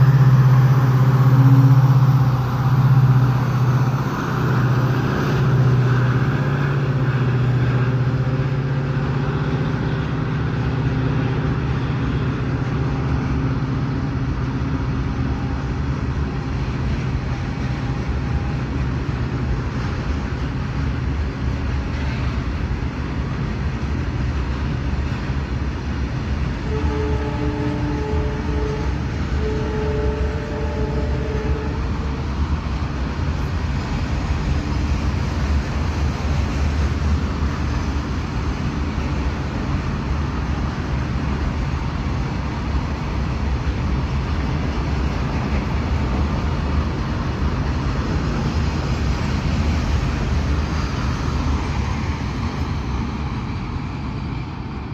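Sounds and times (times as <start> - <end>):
train horn blowing: 0.0 - 4.0, 26.6 - 32.3
freight train wheels rumbling: 0.0 - 54.9.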